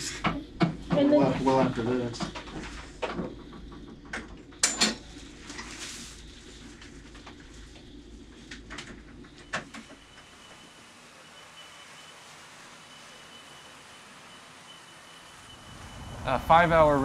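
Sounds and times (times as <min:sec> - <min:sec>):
steady low hum: 0:00.0 - 0:09.6, 0:15.4 - 0:17.0.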